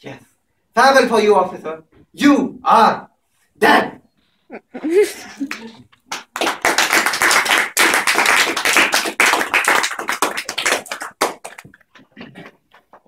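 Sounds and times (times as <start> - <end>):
audience applauding: 5.4 - 11.8.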